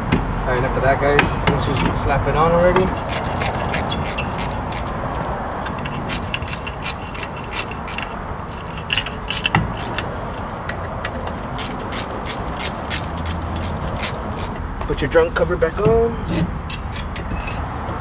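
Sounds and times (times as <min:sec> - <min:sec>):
ratchet wrench clicking: 0:05.6 - 0:14.6.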